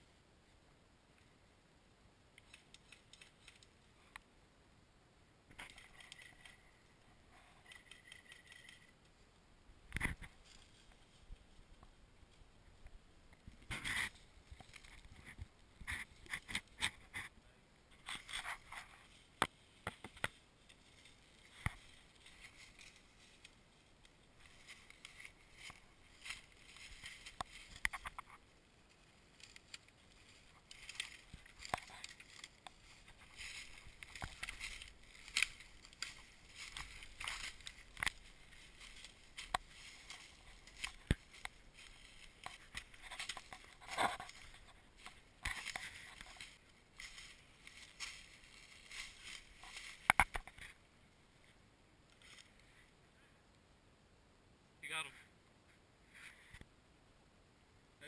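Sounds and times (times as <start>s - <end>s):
leaves and twigs crunching underfoot: 5.5s - 9.2s, 9.9s - 17.3s, 17.9s - 52.9s
twigs snapping: 29.3s - 50.7s.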